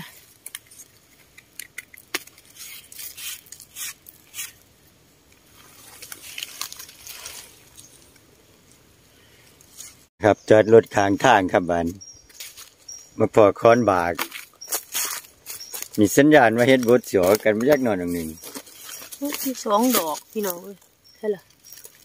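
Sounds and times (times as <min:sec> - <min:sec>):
dry leaves crackling: 0:05.4 - 0:10.1, 0:12.2 - 0:12.9, 0:14.0 - 0:22.0
soft rustling: 0:05.5 - 0:08.8, 0:18.2 - 0:22.0.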